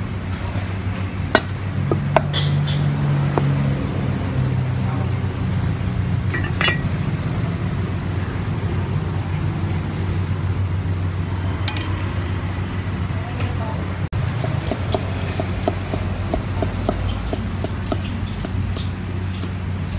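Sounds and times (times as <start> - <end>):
crockery and cleaver clinks: 6.3 - 6.9, 11.7 - 12.2.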